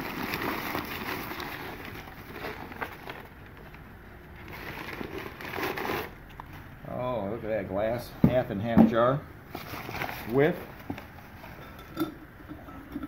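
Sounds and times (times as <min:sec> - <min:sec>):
paper rustling and crinkling: 0:00.0 - 0:06.7, 0:09.5 - 0:11.6.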